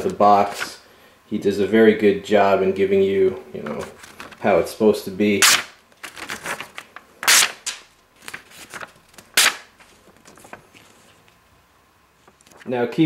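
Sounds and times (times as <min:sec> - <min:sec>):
paper crackling: 0:00.0 - 0:00.8, 0:03.6 - 0:04.6, 0:05.4 - 0:11.5, 0:12.2 - 0:12.7
knife slicing paper: 0:05.4 - 0:09.8.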